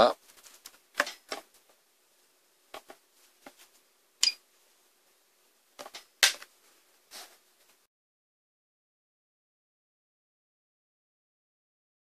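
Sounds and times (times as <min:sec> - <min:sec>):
faint steady hum: 0:00.0 - 0:07.9.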